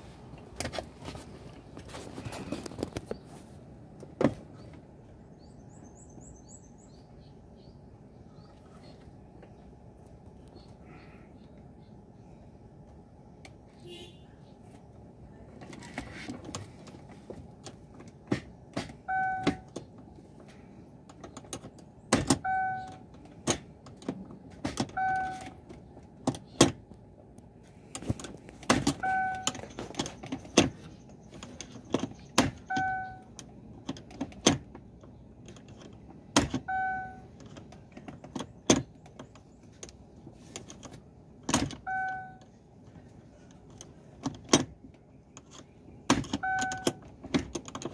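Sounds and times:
short electronic car chime: 19.1s - 19.6s, 29.0s - 29.5s, 46.4s - 46.9s
gear shifter clicking: 27.9s - 47.9s.

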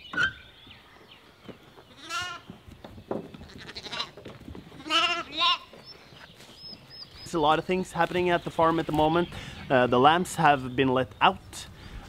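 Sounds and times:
lambs bleating: 1.9s - 2.5s, 3.4s - 4.2s, 4.8s - 5.8s.

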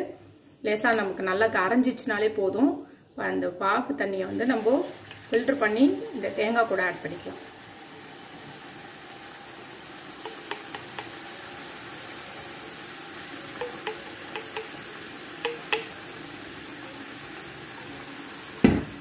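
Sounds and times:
syrup sizzling in hot pan: 4.3s - 19.0s.

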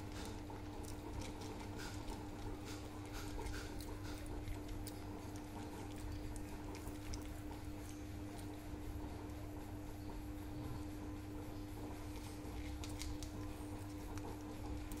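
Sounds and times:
cat crunching dry kibble: 0.0s - 8.6s, 12.0s - 15.0s
steady background hum: 0.0s - 15.0s.

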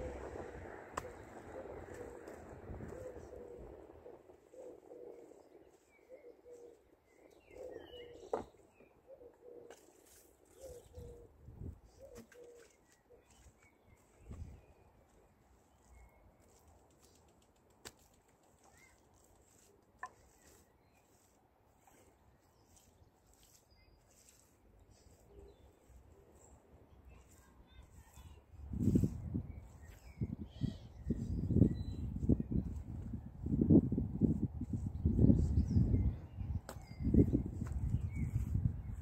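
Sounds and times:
birds calling: 4.4s - 11.3s.

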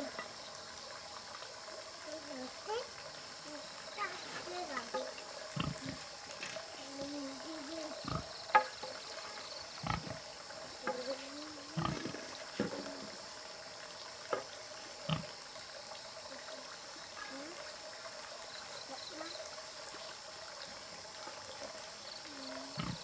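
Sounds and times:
bamboo sticks knocking: 8.5s - 9.0s.

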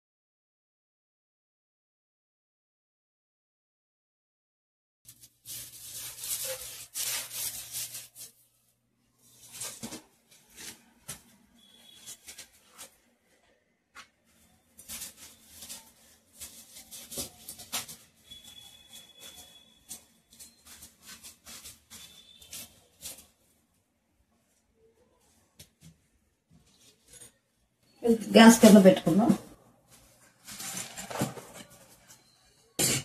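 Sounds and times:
broom scraping walls: 5.1s - 8.4s.

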